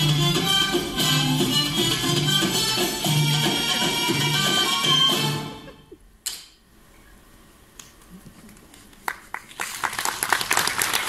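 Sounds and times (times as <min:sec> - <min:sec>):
dance music with tambourine: 0:00.0 - 0:05.6
audience applause: 0:09.0 - 0:11.0.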